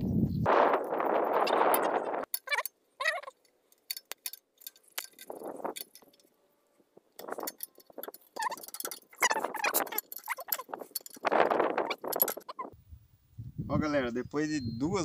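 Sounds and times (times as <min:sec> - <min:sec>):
metal wrench clinking on bolts: 0:02.3 - 0:06.3, 0:07.2 - 0:12.7
short squeaky chirps: 0:02.4 - 0:03.3, 0:08.4 - 0:10.8, 0:11.7 - 0:12.8.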